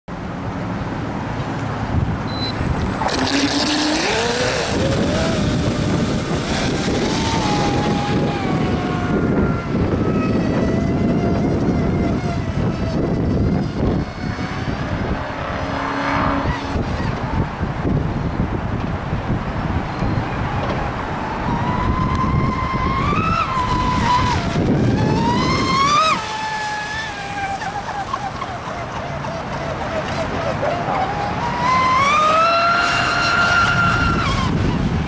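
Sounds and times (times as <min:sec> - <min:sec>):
toy speedboat motor whining: 0:02.3 - 0:18.5, 0:19.9 - 0:35.0.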